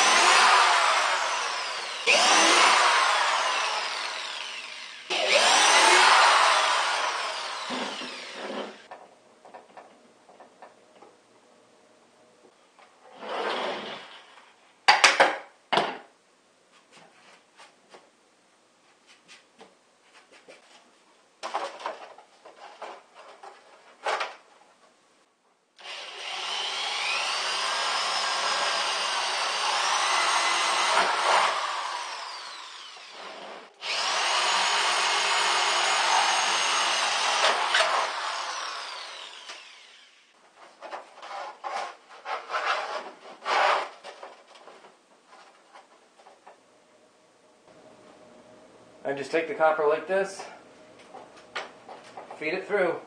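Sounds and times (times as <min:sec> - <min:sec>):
electric drill boring into wood: 0:00.0 - 0:08.9, 0:25.8 - 0:40.3.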